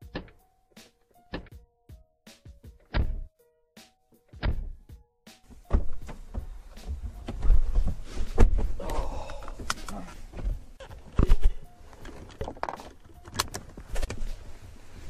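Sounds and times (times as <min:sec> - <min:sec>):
faint background music: 0:00.0 - 0:15.0
knocks and thuds inside car: 0:02.9 - 0:03.3, 0:04.4 - 0:04.8, 0:05.6 - 0:09.3, 0:10.2 - 0:11.4
clothing rustle: 0:05.5 - 0:12.3, 0:13.6 - 0:15.0
car door thud: 0:05.7 - 0:08.8.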